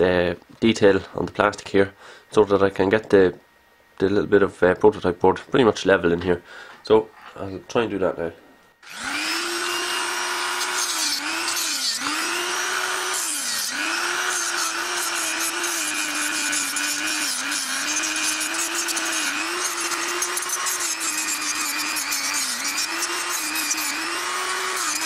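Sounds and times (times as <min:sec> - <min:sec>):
rotary tool cutting plastic: 0:08.8 - 0:25.0.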